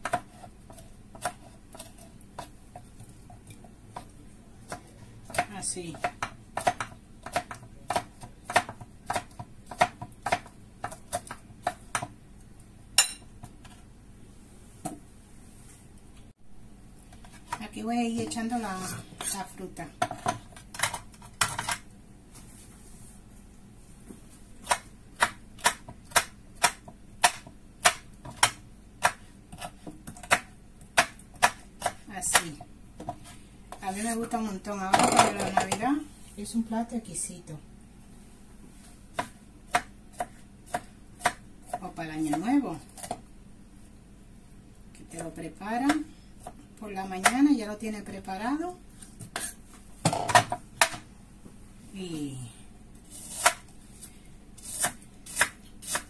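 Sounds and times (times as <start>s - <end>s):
knife chopping on wooden board: 4.7s - 12.2s, 54.6s - 56.0s.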